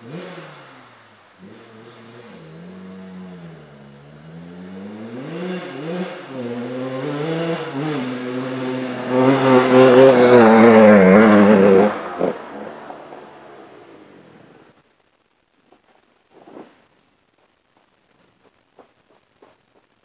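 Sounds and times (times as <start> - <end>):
dirt bike engine revving: 0.0 - 12.5.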